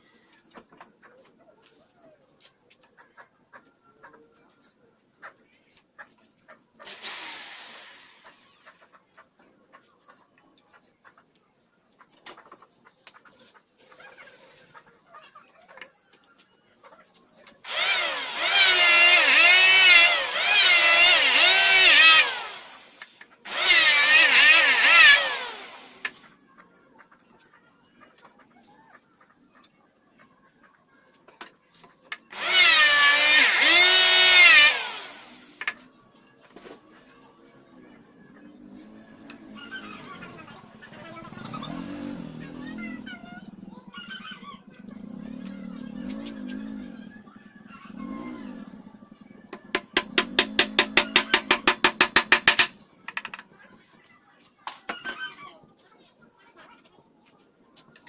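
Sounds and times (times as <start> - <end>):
power tool motor whining: 6.8 - 8.8, 17.6 - 26.2, 32.3 - 35.7, 49.6 - 52.7.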